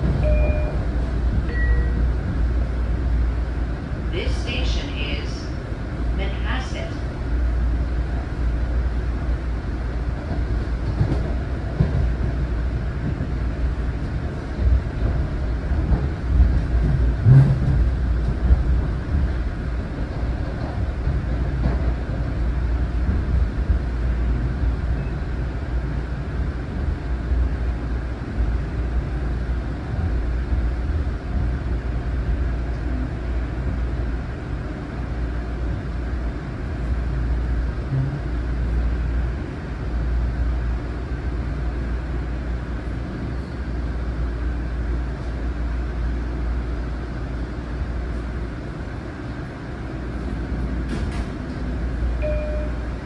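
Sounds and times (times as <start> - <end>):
train wheels rumbling on rail: 0.0 - 53.0
train bumps: 10.2 - 24.7, 37.8 - 38.4, 50.1 - 52.0.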